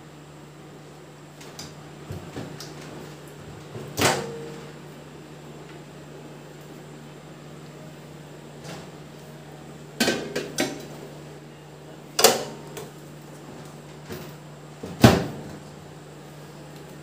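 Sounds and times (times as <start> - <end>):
oven door shutting with knocks: 14.9 - 15.6.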